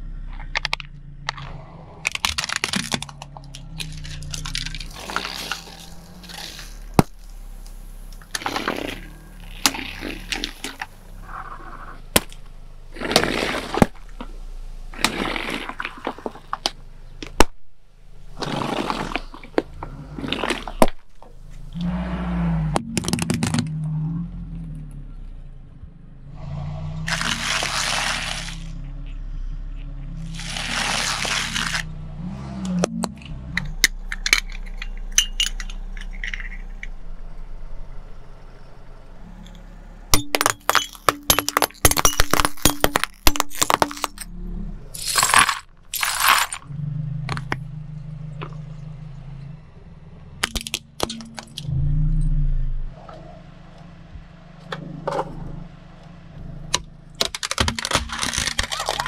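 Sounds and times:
saucers shattering: 2.1 - 7.4, 33.6 - 37.0, 40.1 - 44.3, 45.0 - 46.7, 57.2 - 59.0
balloons bursting with spray: 27.1 - 28.7, 30.2 - 31.9.

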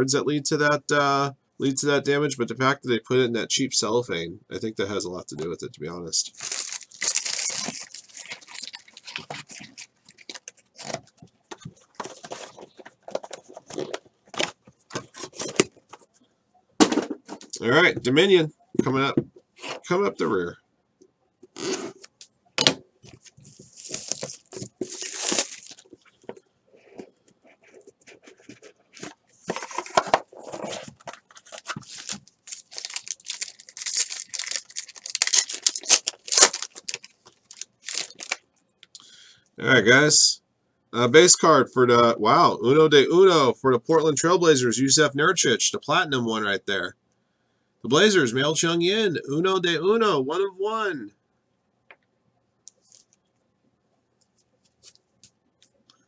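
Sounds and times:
wrapper crinkling and tearing: 6.3 - 11.2, 23.3 - 26.0, 29.0 - 38.4
cards and box handled: 6.3 - 16.1, 23.0 - 26.4, 28.0 - 38.4.

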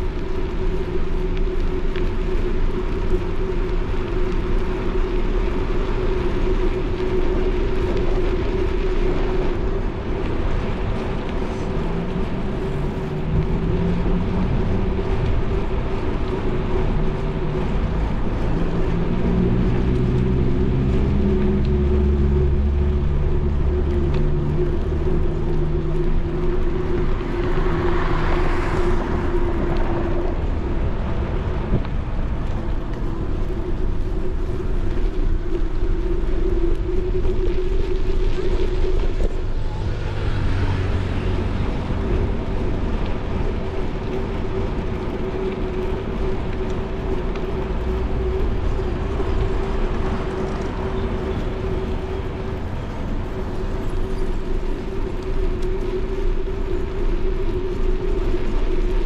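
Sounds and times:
bicycle rolling on pavement: 0.0 - 59.0
car traffic: 0.0 - 59.0
vehicle passing by: 17.6 - 31.8, 39.3 - 44.1.

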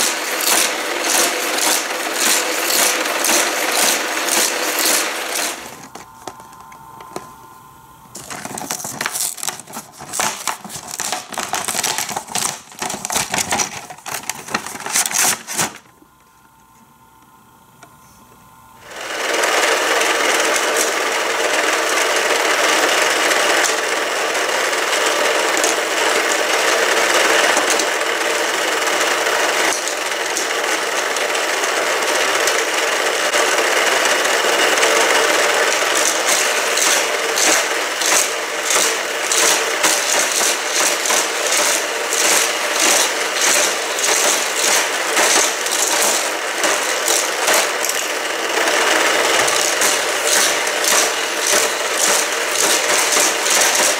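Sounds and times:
toy track booster whirring: 0.0 - 6.4, 8.2 - 15.9, 18.8 - 53.9
sharp plastic clacks: 8.2 - 15.9, 35.6 - 53.9.

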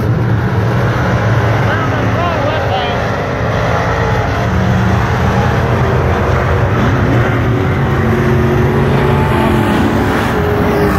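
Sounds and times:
race car engines running hard: 0.0 - 10.9.

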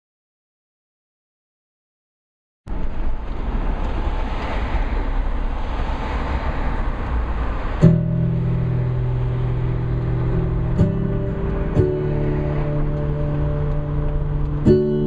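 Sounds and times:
street traffic: 2.7 - 15.0
music with held notes: 7.8 - 15.0.

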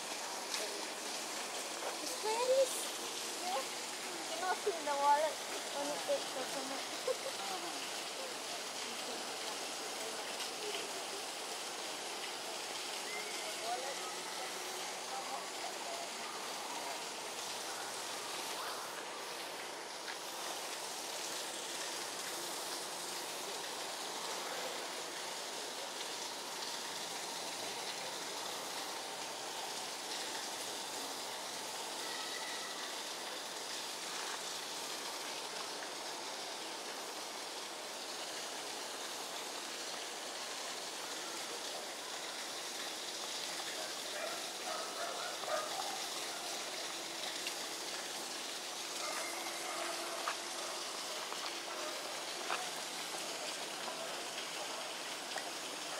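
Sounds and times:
rushing hiss: 0.0 - 55.9.

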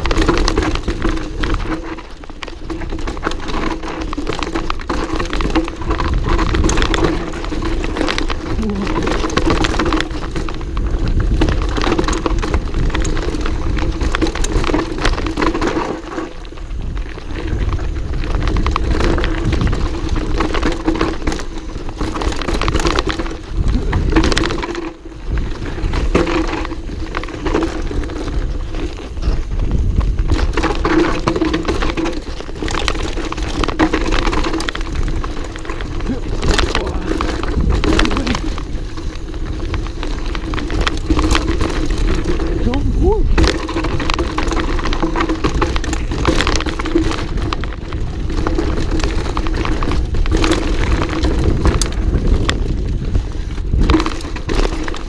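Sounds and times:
bike rattling clicks and knocks: 0.0 - 55.0
tyres and air rumbling: 34.6 - 45.9.

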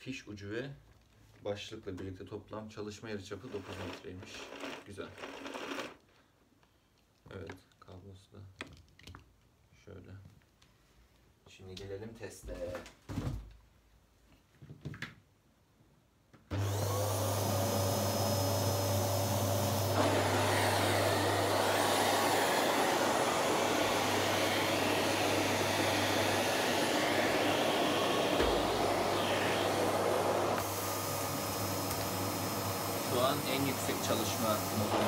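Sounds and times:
vacuum cleaner motor whine: 16.5 - 35.0.

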